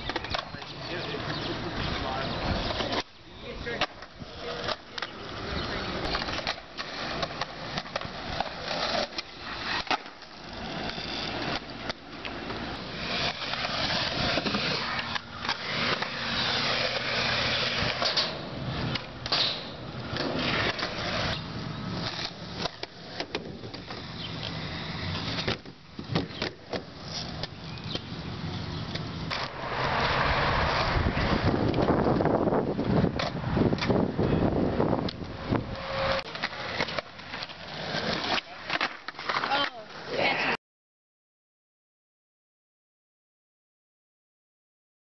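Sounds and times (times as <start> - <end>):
skateboard tail clacks: 0.0 - 3.1, 3.7 - 28.2, 28.8 - 34.4
skateboard wheels rolling on concrete: 0.0 - 40.6.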